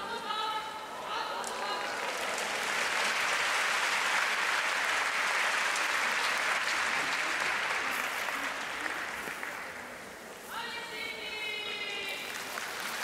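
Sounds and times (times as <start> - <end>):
crowd applauding: 1.4 - 9.9, 12.2 - 13.0.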